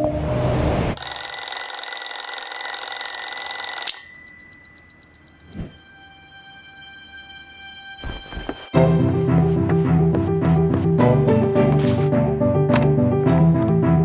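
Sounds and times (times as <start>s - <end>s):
alarm clock bells ringing: 1.0s - 7.7s.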